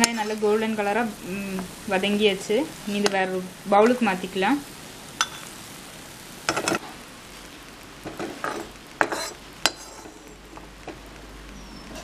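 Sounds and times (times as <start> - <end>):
hot oil sizzling: 0.0 - 12.0.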